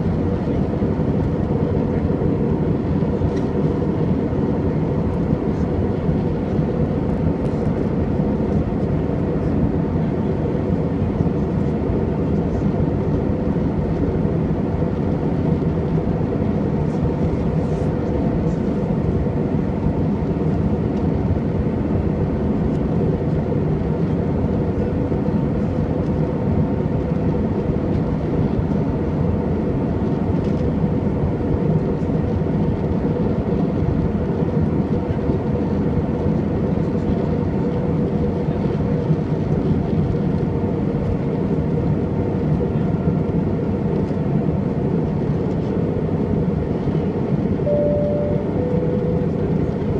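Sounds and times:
jet engine rumble and rushing air: 0.0s - 49.9s
faint steady hum: 47.6s - 49.9s.

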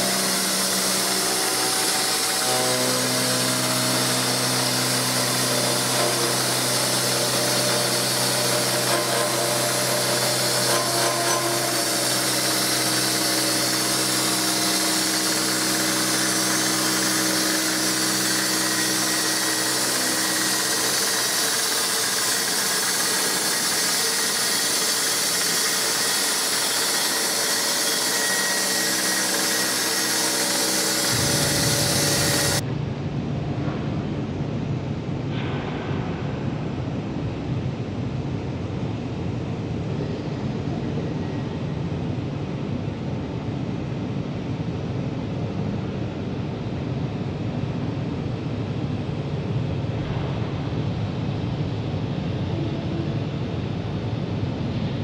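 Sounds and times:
milling machine hum: 0.0s - 32.6s.

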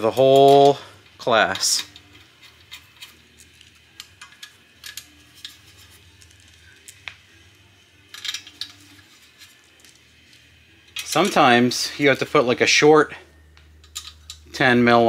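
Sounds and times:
metal fasteners clinking: 0.0s - 7.1s, 8.0s - 10.0s, 13.6s - 14.6s.

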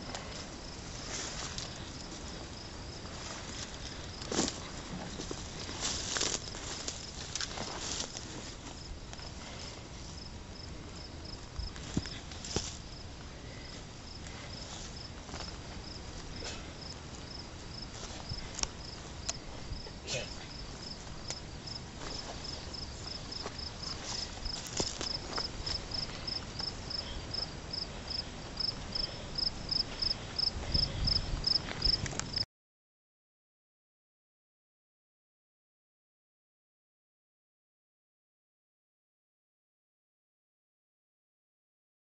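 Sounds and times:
insect chirping: 0.0s - 4.4s, 10.1s - 32.4s
footsteps through brush: 0.0s - 10.2s, 11.3s - 19.7s, 20.5s - 32.4s.

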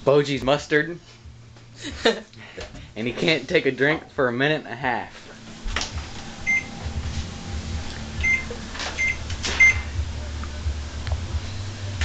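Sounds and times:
low steady rumble: 6.0s - 12.0s
microwave keypad beeps: 6.4s - 6.8s, 8.2s - 9.9s.

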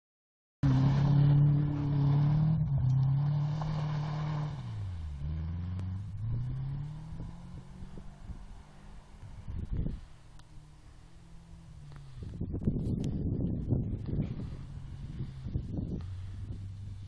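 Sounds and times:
car engine revving: 0.6s - 17.0s.

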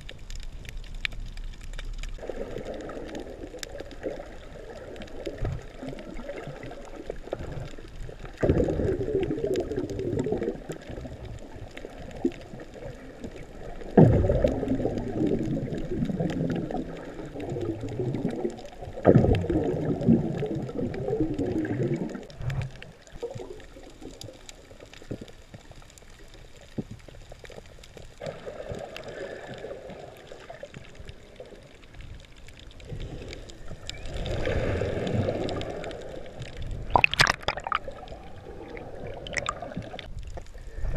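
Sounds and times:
muffled underwater gurgling: 2.1s - 25.3s, 28.2s - 40.9s
sharp splash: 36.9s - 37.9s.

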